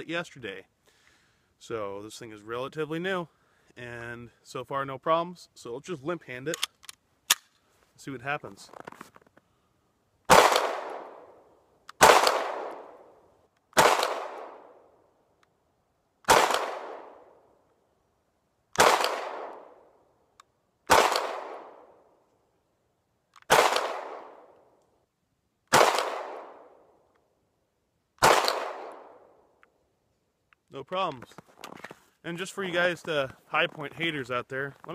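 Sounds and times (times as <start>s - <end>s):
pistol shots: 10.3s - 11.4s, 12.0s - 13.1s, 13.8s - 14.8s, 16.2s - 17.3s, 18.8s - 19.8s, 20.9s - 21.9s, 23.5s - 24.5s, 25.7s - 26.8s, 28.2s - 29.3s.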